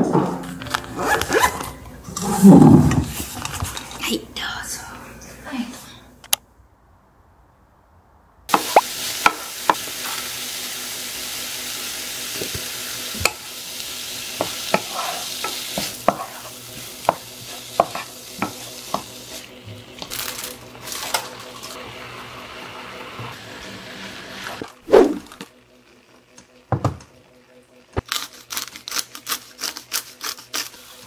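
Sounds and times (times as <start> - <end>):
food sizzling in a frying pan: 8.5 - 19.5.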